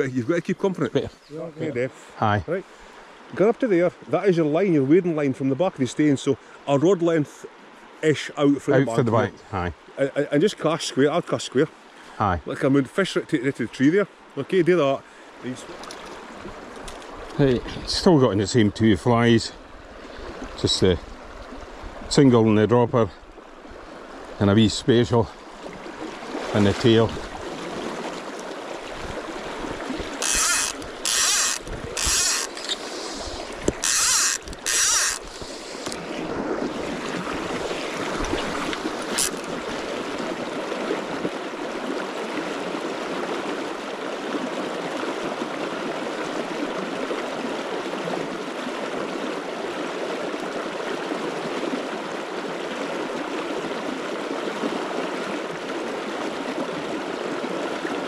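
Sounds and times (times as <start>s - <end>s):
river rushing: 23.2s - 58.0s
fly reel ratchet buzzing: 30.2s - 36.0s, 39.1s - 39.5s.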